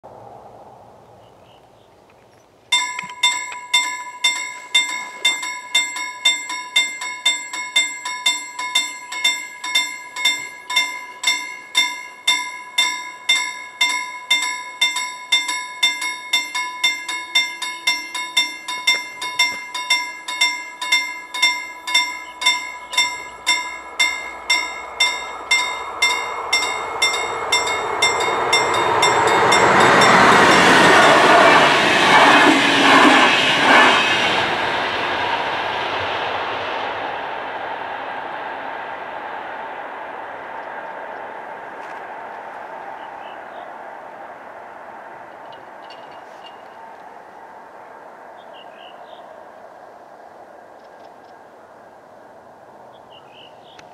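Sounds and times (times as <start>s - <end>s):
level crossing warning bell: 2.7s - 34.3s
passenger train approaching: 2.7s - 53.9s.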